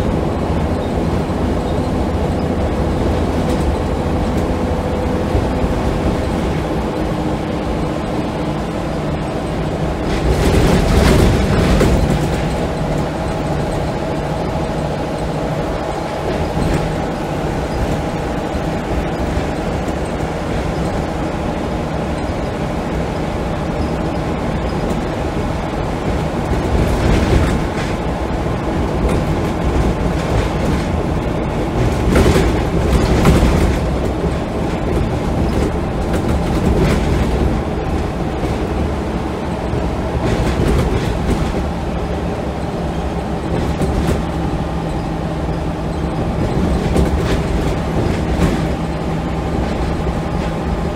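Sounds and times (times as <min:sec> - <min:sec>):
bus diesel engine drone: 0:00.0 - 0:50.9
road rumble: 0:00.0 - 0:50.9
body rattles: 0:10.0 - 0:20.9.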